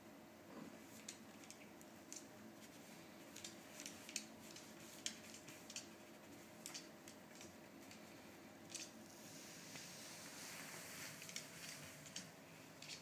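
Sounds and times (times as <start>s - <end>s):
soft clicks and rustles: 0.5s - 13.0s.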